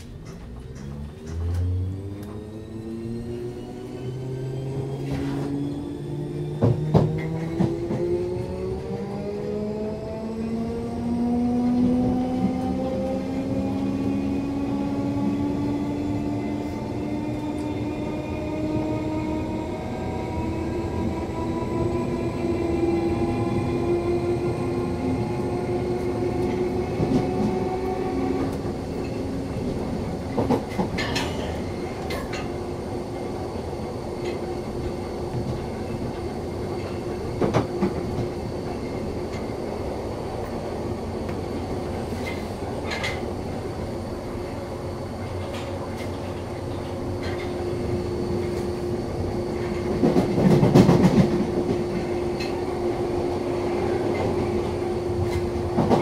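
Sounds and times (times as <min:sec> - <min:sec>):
train wheels rumbling: 0:00.0 - 0:56.0
traction motor whine: 0:00.5 - 0:30.5.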